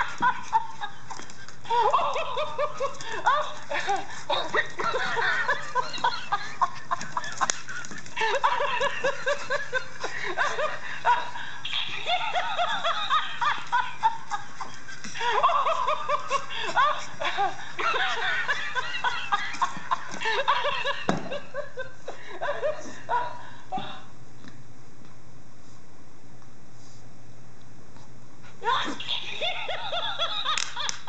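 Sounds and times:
toy giggling cackles: 0:01.7 - 0:21.0, 0:28.7 - 0:31.0.

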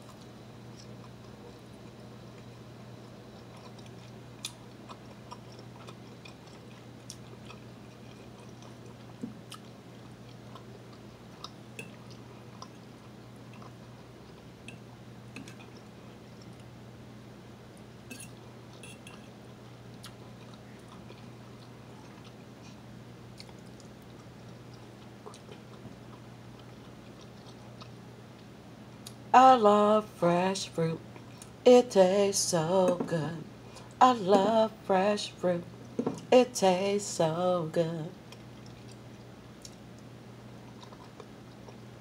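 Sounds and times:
person chewing food: 0:00.0 - 0:16.8, 0:18.1 - 0:29.2, 0:31.0 - 0:31.6, 0:38.2 - 0:42.0
low hum: 0:00.0 - 0:42.0.

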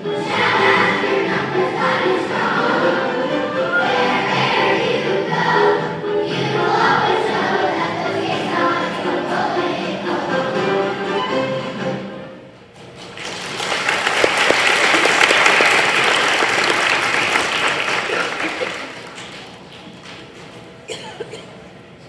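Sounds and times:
children's choir singing: 0:00.0 - 0:12.5
audience applauding: 0:13.0 - 0:19.8.

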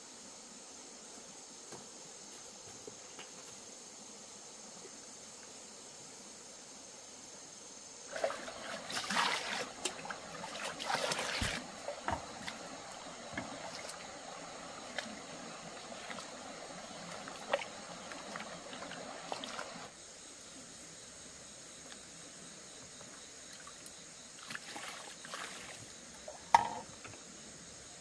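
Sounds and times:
high insect drone: 0:00.0 - 0:28.0
water splashing and trickling: 0:08.1 - 0:20.0, 0:23.5 - 0:26.8.

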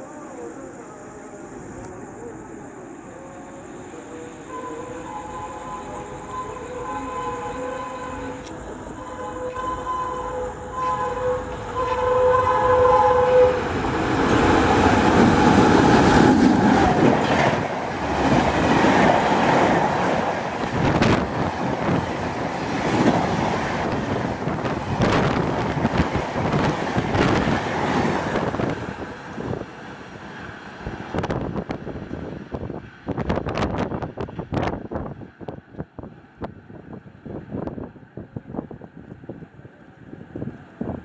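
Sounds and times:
two-tone locomotive horn: 0:04.4 - 0:13.9.

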